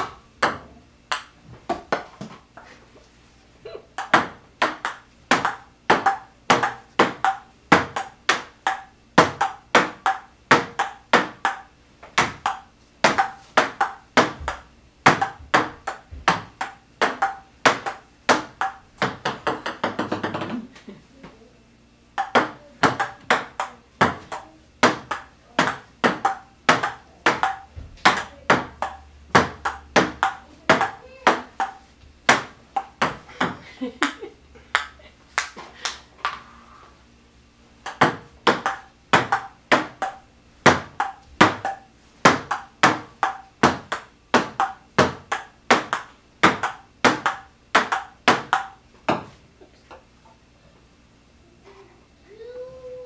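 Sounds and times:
ping-pong ball clicking: 0.4s - 1.4s, 4.0s - 20.6s, 22.2s - 33.6s, 37.8s - 40.2s, 42.4s - 48.8s.

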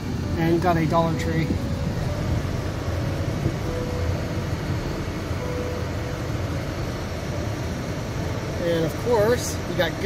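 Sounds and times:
car road and engine noise: 0.0s - 10.0s.

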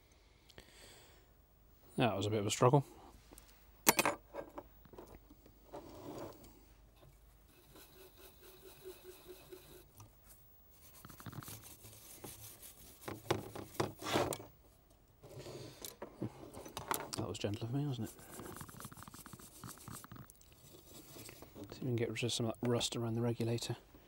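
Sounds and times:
light rubbing and scraping: 4.3s - 14.5s, 15.2s - 23.7s.

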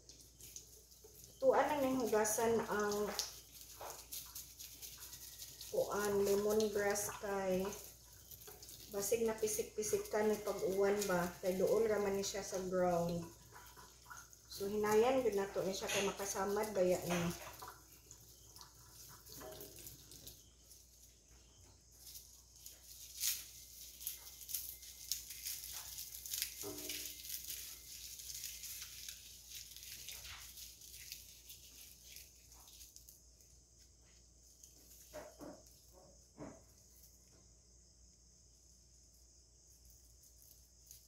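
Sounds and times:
stalks rustling and crackling: 0.0s - 37.4s.

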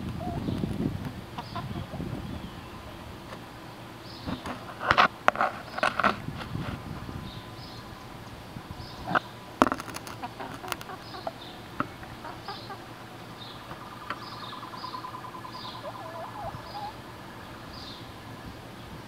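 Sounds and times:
chickens clucking softly: 0.0s - 3.5s, 7.0s - 18.1s.

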